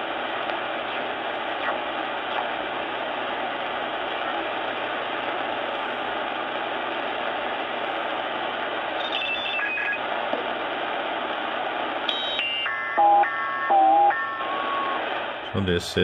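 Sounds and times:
shortwave radio band hiss: 0.0s - 16.0s
digital-mode radio tones: 0.8s - 3.2s, 8.8s - 10.9s, 12.1s - 16.0s.

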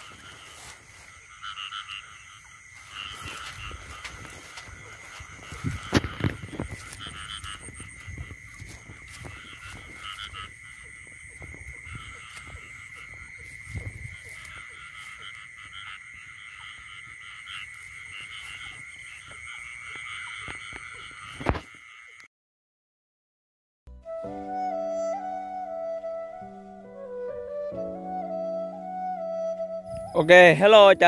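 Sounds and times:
frogs calling: 0.0s - 22.3s.

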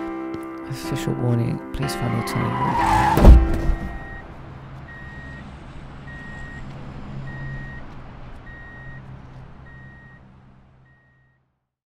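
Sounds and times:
electronic warning beeper: 3.5s - 4.3s, 7.2s - 7.9s, 8.5s - 9.0s
low engine-like hum: 3.5s - 11.5s.

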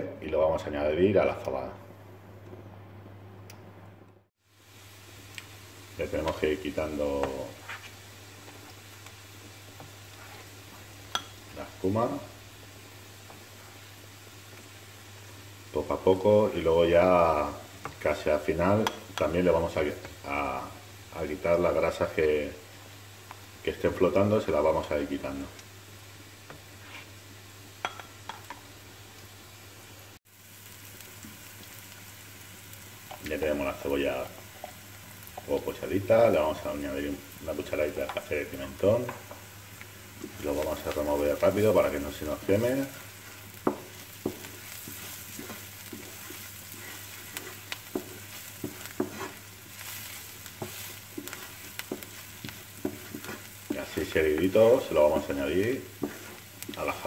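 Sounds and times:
onion sizzling in oil: 4.4s - 57.0s
wooden spatula scraping a pan: 7.2s - 8.7s, 9.8s - 10.9s, 26.5s - 27.2s, 40.1s - 57.0s.

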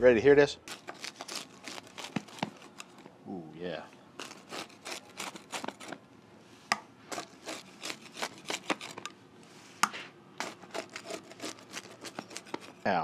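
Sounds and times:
pizza cutter crunching crust: 0.6s - 3.1s, 4.2s - 6.0s, 7.1s - 9.1s, 10.4s - 13.0s.

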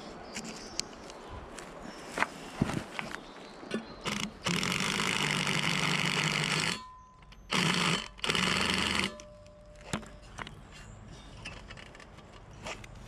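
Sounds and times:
cordless drill drilling concrete: 4.0s - 9.3s.

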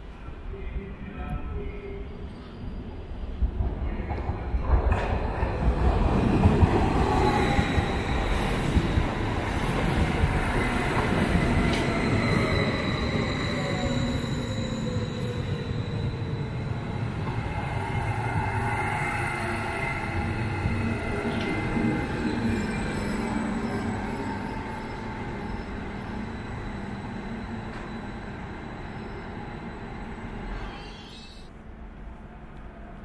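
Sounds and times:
train wheels rumbling on rails: 3.3s - 24.2s.

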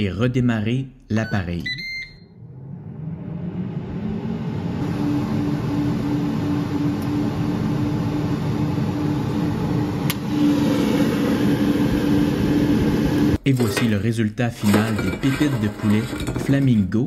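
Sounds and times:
air fryer fan whirring: 2.4s - 13.4s.

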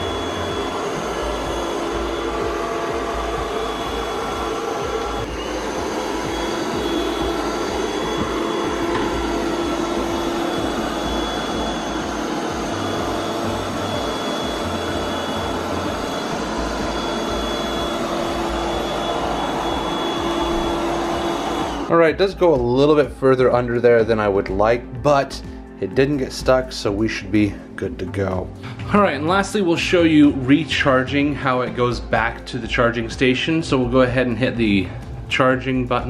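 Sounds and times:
robot vacuum motor drone: 0.0s - 21.9s.

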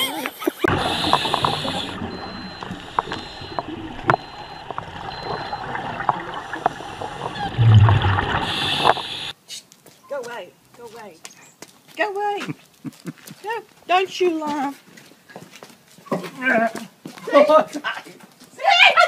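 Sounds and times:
diver breathing underwater: 0.7s - 4.6s, 5.2s - 9.3s
regulator bubbles gurgling: 0.7s - 9.3s
sharp clicks underwater: 0.7s - 9.3s.

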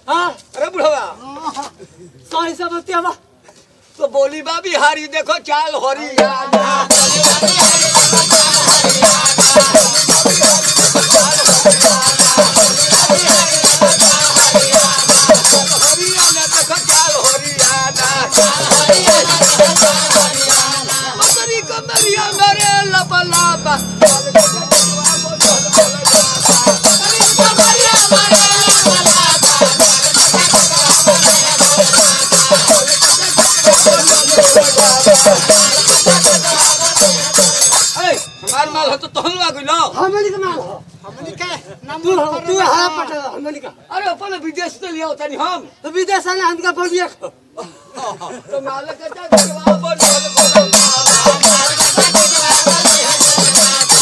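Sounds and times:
hand drum beat: 6.2s - 21.4s, 23.3s - 38.2s, 49.3s - 54.0s
jingling rattle: 6.9s - 39.4s.

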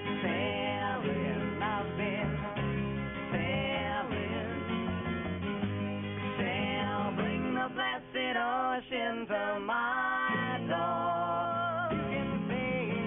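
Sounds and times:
wavering vocal harmonies: 0.0s - 5.4s, 6.3s - 13.0s
electric bass: 0.0s - 7.6s, 11.9s - 13.0s
strummed acoustic guitars: 0.0s - 13.0s.

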